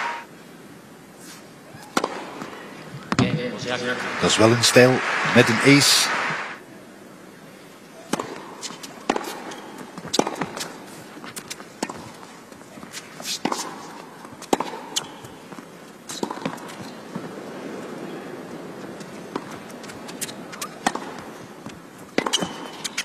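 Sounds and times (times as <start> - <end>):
arena hum: 0.0 - 0.3, 3.3 - 6.6
tennis ball bouncing on court: 2.0 - 2.5, 8.1 - 10.7, 11.4 - 12.1, 13.4 - 17.3, 18.9 - 23.0
tennis ball struck by rackets: 2.0 - 2.5, 8.1 - 10.7, 14.4 - 15.2, 16.2 - 16.6, 19.3 - 21.3, 22.1 - 23.0.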